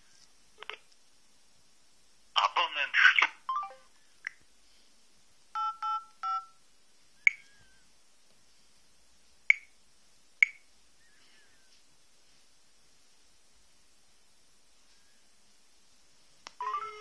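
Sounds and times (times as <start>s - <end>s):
touch-tone keypad beeps: 5.6s - 6.6s.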